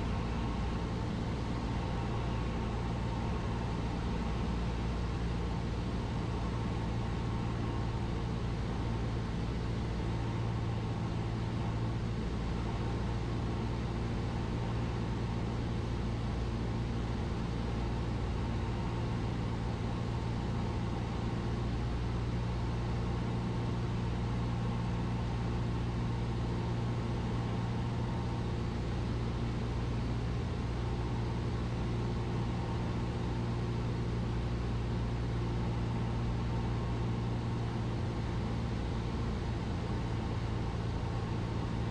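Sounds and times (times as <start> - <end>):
propeller plane engine droning: 0.0 - 41.9.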